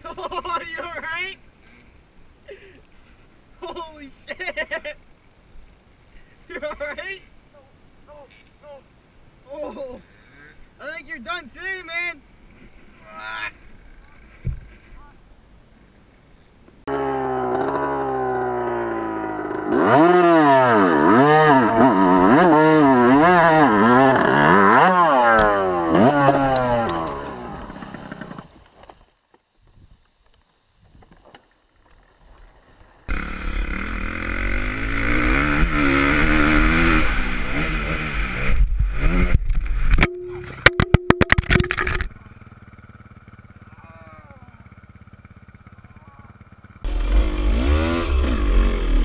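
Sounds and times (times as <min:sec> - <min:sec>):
dirt bike engine revving: 0:16.9 - 0:28.6, 0:33.0 - 0:49.0
dirt bike running at speed: 0:16.9 - 0:28.6, 0:33.0 - 0:49.0.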